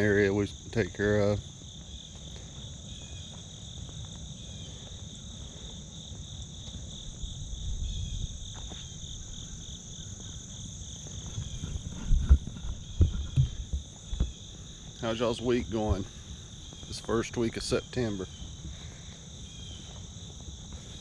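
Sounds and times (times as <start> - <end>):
crickets and insects trilling: 0.0 - 21.0
sharp thumps: 11.4 - 14.4.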